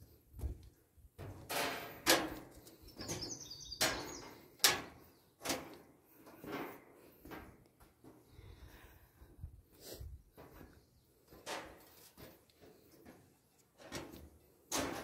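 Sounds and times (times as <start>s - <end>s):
footsteps clanking on metal stairs: 0.4s - 8.2s, 10.4s - 15.0s
bird chirp: 2.7s - 5.4s
person breathing: 5.9s - 10.8s.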